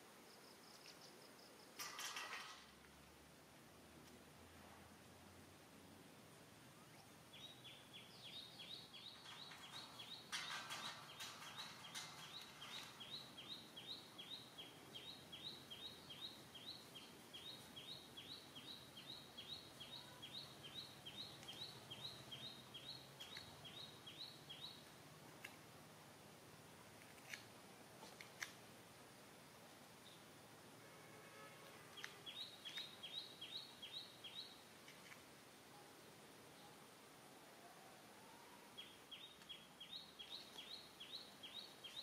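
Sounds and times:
bird chirping: 0:06.7 - 0:24.9, 0:31.9 - 0:34.7, 0:38.2 - 0:42.0
rustling noise: 0:08.9 - 0:13.6.

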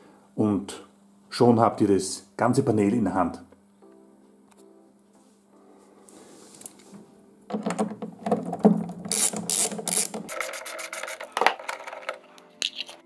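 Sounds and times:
ratchet pawl clicks: 0:09.1 - 0:11.2.

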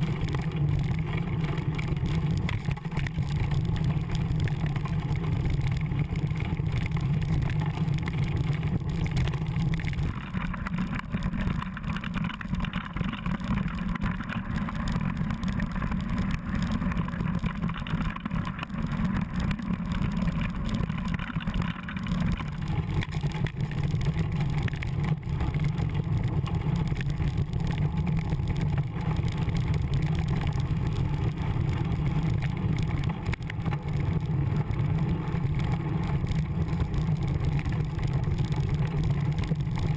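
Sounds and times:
bike tyres rattling on gravel: 0:00.0 - 0:39.9
wind rumble on microphone: 0:00.0 - 0:39.9.

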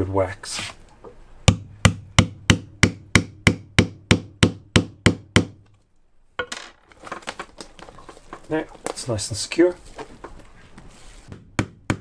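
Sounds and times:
rustling and clicks: 0:05.6 - 0:09.2, 0:09.8 - 0:11.0.

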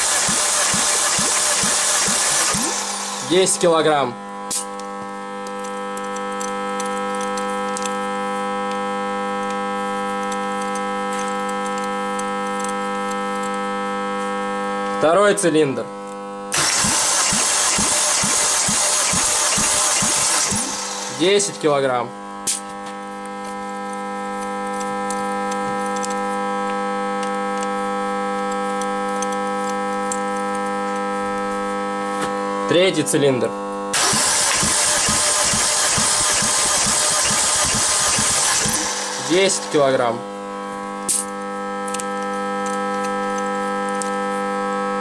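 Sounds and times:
held electronic chord: 0:00.0 - 0:04.1, 0:16.5 - 0:21.9, 0:33.9 - 0:40.7
steady multi-pitch hum: 0:00.0 - 0:06.7, 0:16.2 - 0:26.6, 0:31.1 - 0:43.9.

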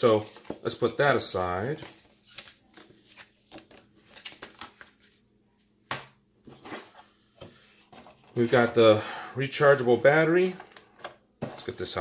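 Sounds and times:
paper and cardboard rustling: 0:00.0 - 0:05.2.

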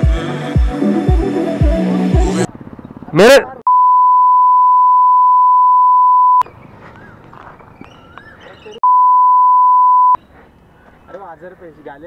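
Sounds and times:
censor bleep: 0:03.7 - 0:06.4, 0:08.8 - 0:10.2.

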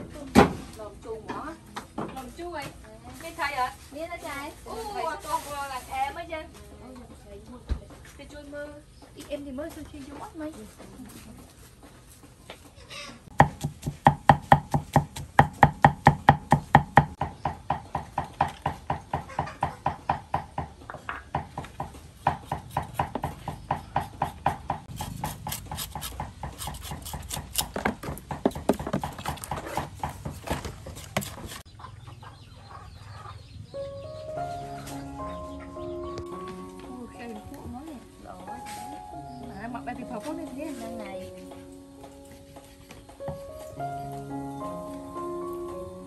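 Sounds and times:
knife chopping food: 0:13.3 - 0:20.6, 0:21.4 - 0:31.7.

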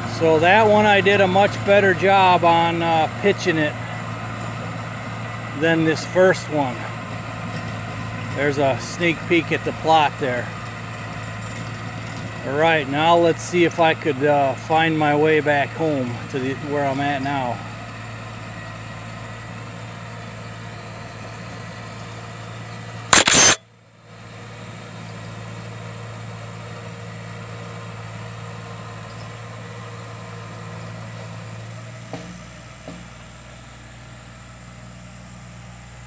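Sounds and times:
low engine hum: 0:00.0 - 0:36.0
loud burst of noise: 0:23.1 - 0:23.6.

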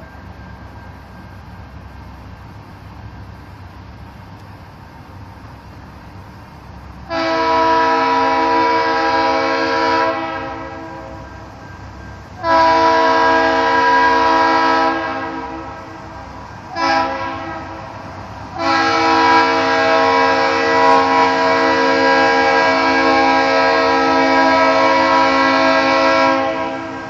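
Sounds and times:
locomotive air horn blasts: 0:07.0 - 0:11.4, 0:12.4 - 0:27.0.

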